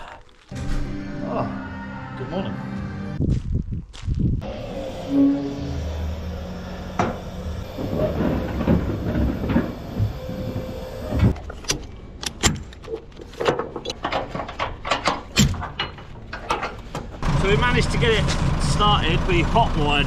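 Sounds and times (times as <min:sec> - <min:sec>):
hydraulic ramps humming and creaking: 0:04.4 - 0:20.0.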